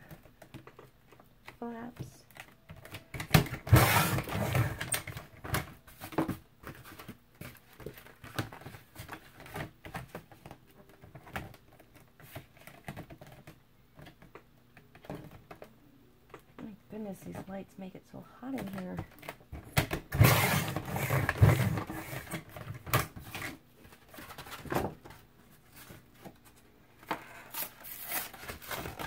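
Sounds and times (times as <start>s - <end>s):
cardboard clicks and rustles: 0.0s - 15.7s, 18.6s - 29.0s
paper trimmer blade scraping cut: 20.1s - 22.3s.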